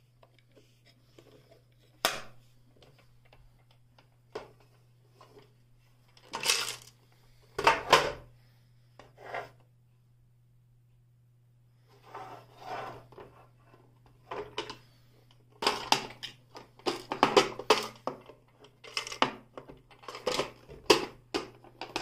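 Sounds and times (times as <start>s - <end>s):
plastic parts knocking and clattering: 6.1s - 8.2s, 14.0s - 14.9s, 15.5s - 22.0s.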